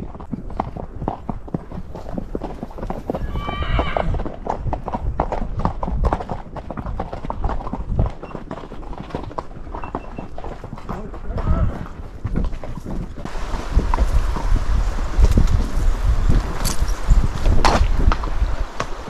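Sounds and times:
horse hooves clopping on gravel: 0.0 - 19.0
horse whinnying: 3.1 - 4.2.

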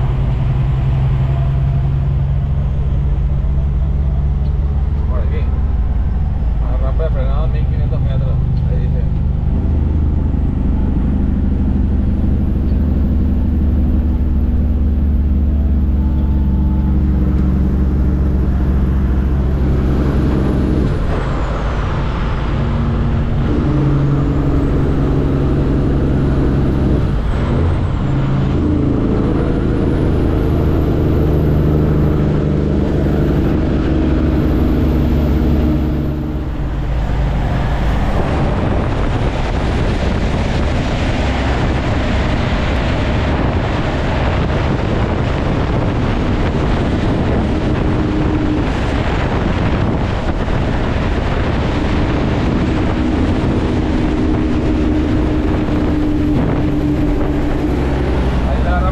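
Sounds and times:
diesel truck engine running: 0.0 - 58.9.

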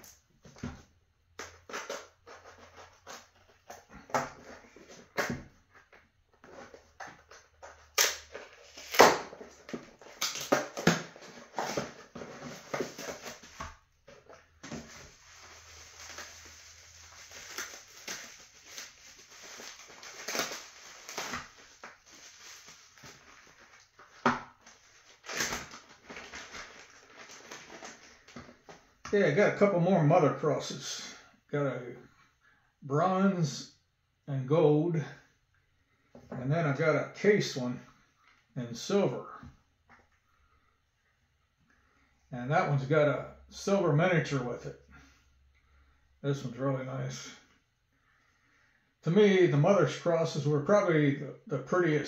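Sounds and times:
packaging crinkling and rustling: 1.6 - 28.8.

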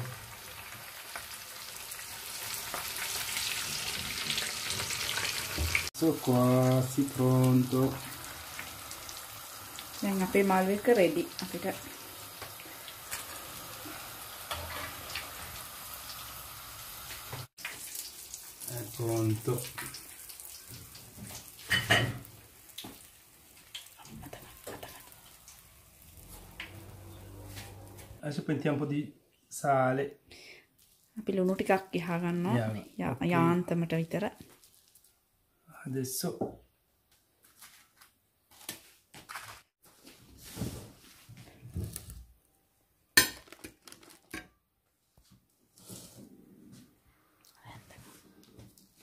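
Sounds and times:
hot oil crackling in pan: 0.0 - 27.1
glass bowl clink: 21.7 - 22.2.

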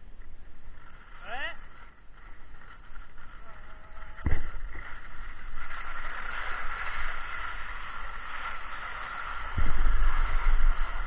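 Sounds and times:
skis sliding over packed snow: 0.0 - 11.0
wind buffeting microphone: 9.5 - 11.0.

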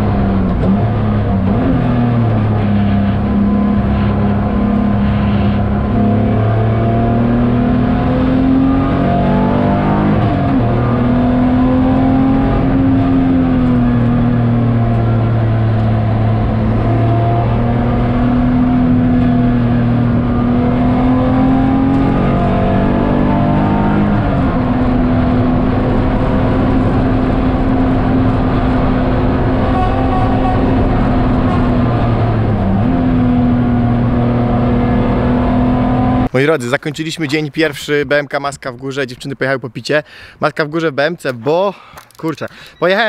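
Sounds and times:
car engine under load: 0.0 - 36.3.

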